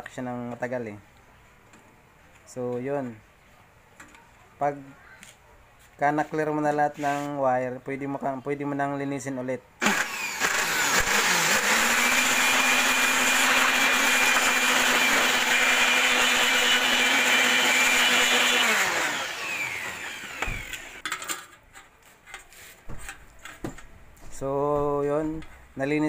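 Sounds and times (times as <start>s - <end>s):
electric air blower motor: 9.8s - 21.0s.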